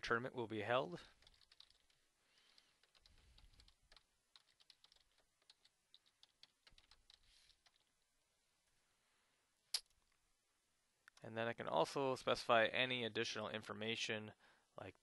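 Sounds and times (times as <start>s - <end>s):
computer keyboard typing: 1.1s - 7.9s.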